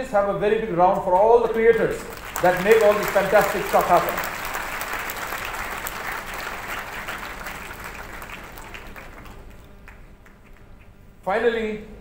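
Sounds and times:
audience applauding: 1.4 - 10.9.

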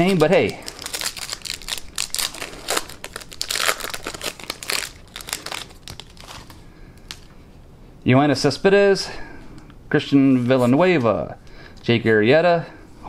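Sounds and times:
foil wrapper crinkling: 0.0 - 7.3.

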